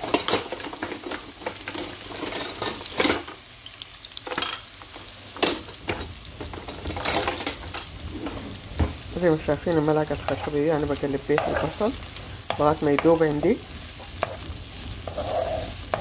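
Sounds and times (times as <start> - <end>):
onions sizzling in oil: 0.0 - 16.0
wooden spoon scraping pan: 6.6 - 16.0.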